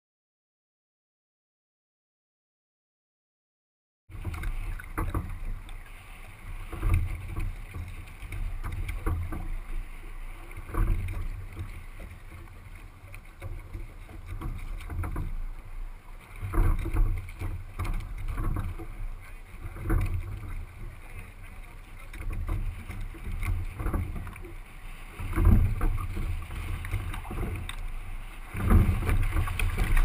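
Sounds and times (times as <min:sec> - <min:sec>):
water slapping against boat bow: 0:04.1 - 0:30.0
wind buffeting microphone: 0:22.1 - 0:30.0.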